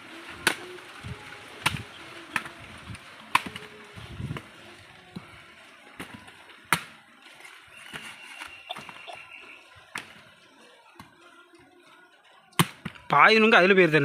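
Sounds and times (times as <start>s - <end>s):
machete chopping fruit: 3.3s - 3.7s, 6.0s - 7.0s, 12.6s - 13.0s.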